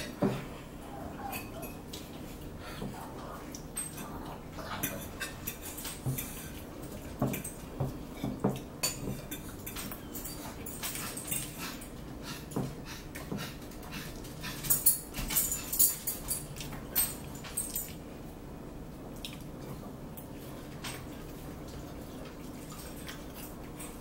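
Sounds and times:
forks clinking on plates: 1.2 - 2.2, 3.6 - 11.9, 14.5 - 18.0
close chewing: 19.2 - 24.0.

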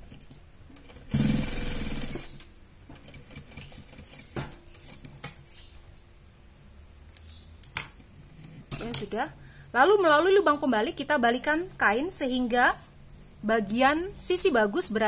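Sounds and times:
sewing machine stitching: 0.8 - 2.4.

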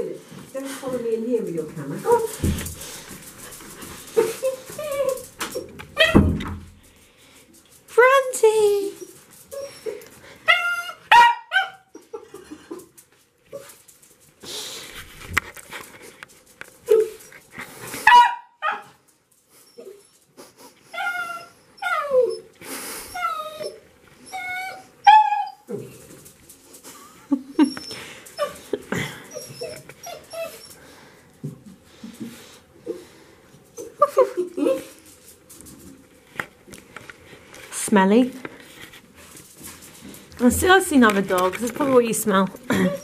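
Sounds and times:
rustling noise: 0.2 - 8.1, 12.8 - 18.1, 34.6 - 43.0
dog whining: 4.1 - 6.2, 9.5 - 12.1, 20.9 - 26.0, 27.5 - 30.8, 42.7 - 43.0
dog barking high-pitched: 11.1 - 11.9, 18.1 - 18.8.

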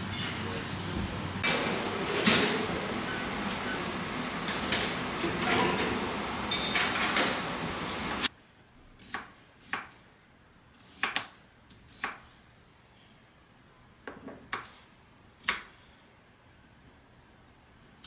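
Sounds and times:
dishes and cutlery clattering: 5.2 - 7.4.

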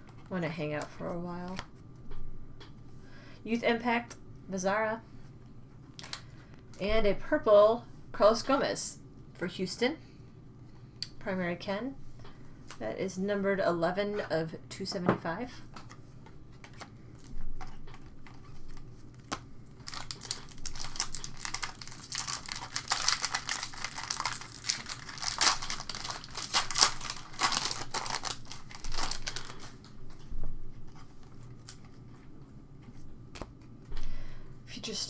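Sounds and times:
cards rustling: 15.8 - 30.2
foil wrapper crinkling and tearing: 18.0 - 29.9.

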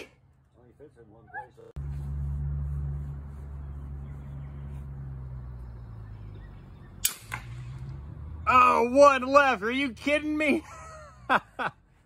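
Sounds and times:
rifle shot crack: 7.0 - 7.8.

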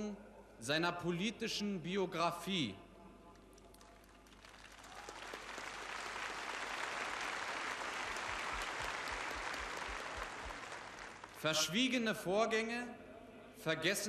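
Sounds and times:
crowd applauding: 3.7 - 11.4.

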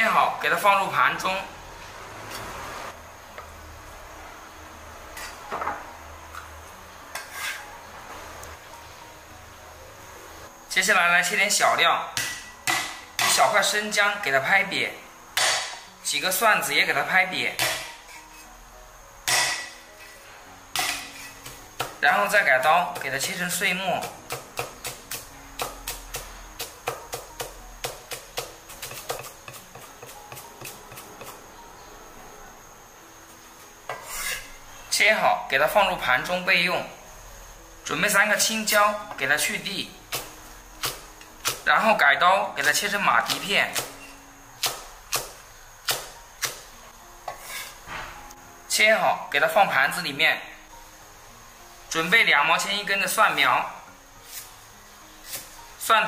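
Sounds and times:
tofu scraping on wooden board: 7.2 - 7.6, 33.9 - 34.6, 47.3 - 47.8
cleaver chopping on wooden block: 24.0 - 31.4.

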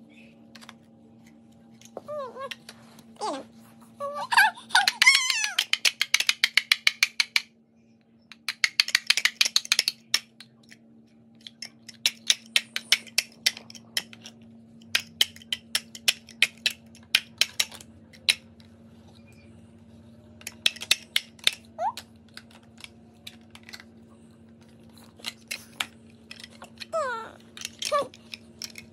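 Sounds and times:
faint steady hum: 0.0 - 28.9
plastic blocks clicking together: 4.7 - 7.5, 8.3 - 10.8, 11.4 - 18.7, 20.4 - 28.9.

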